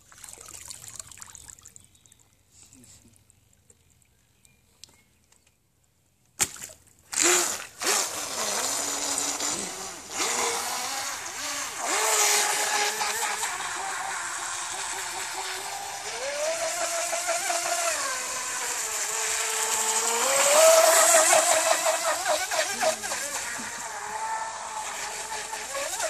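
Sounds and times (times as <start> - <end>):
small water splashes: 0.0 - 5.3, 6.4 - 26.0
electric motor whining: 7.2 - 26.0.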